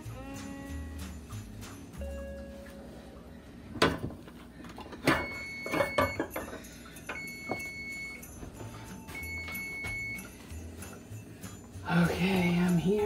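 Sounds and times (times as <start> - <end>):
oven timer beeping: 5.1 - 11.0.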